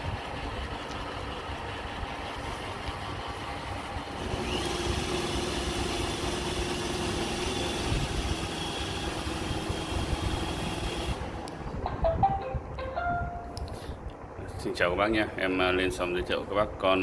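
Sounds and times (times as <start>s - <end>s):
robot vacuum motor whirring: 4.2s - 11.3s.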